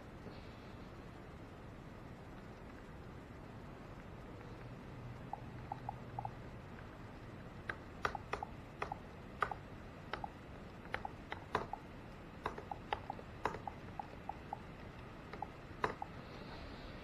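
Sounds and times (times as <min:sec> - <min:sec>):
fan hum: 0:00.0 - 0:17.0
keyboard keys clicking: 0:07.6 - 0:16.2.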